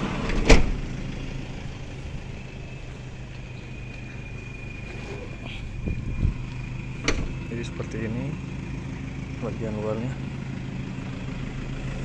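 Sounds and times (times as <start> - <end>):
engine idling hum: 0.0 - 12.0
high whine: 0.2 - 8.1.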